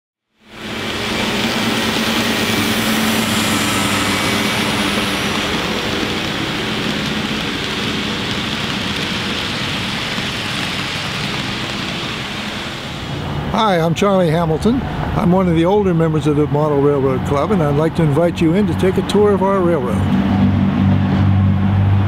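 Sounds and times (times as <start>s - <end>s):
low droning hum: 0.4s - 13.6s
rumbling engine noise with hiss: 0.4s - 22.0s.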